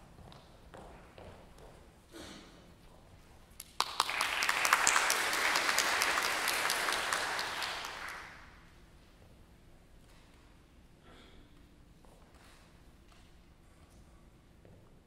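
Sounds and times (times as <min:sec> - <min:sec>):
audience applauding: 0:03.6 - 0:08.6.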